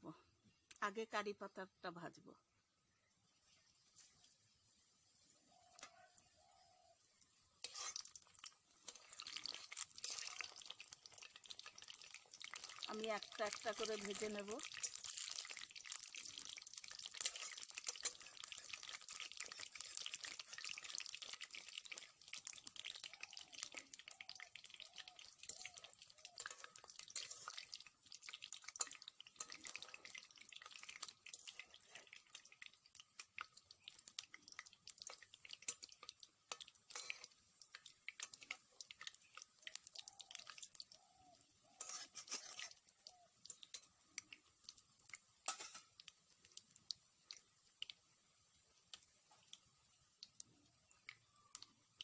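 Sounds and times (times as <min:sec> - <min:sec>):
frying in hot oil: 0:00.0 - 0:52.0.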